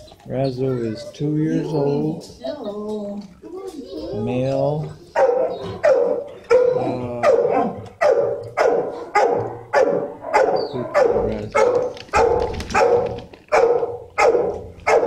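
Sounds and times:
dog barking with echo: 5.2s - 15.0s.

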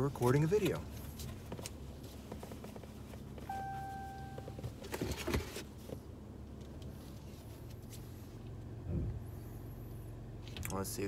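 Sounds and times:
low steady hum: 0.0s - 11.0s
steady beep: 3.5s - 4.6s.

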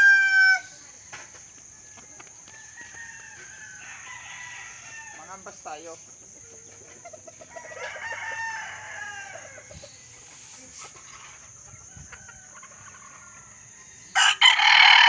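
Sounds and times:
rooster crowing: 0.0s - 0.7s, 2.5s - 5.6s, 7.4s - 10.0s, 11.7s - 15.0s.

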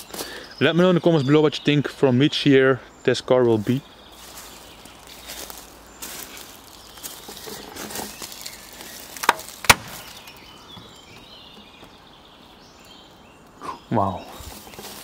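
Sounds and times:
close rustling and handling: 4.2s - 12.0s, 14.4s - 15.0s.

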